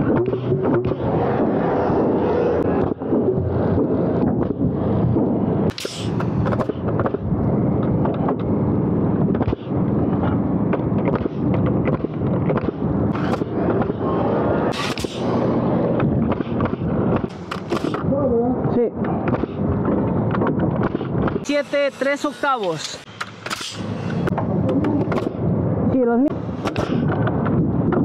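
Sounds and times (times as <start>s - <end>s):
steady loud background noise: 0.0s - 28.0s
nail gun firing: 5.7s - 7.2s, 11.0s - 14.0s, 14.7s - 15.5s, 16.3s - 18.0s, 20.8s - 24.3s, 26.4s - 27.0s.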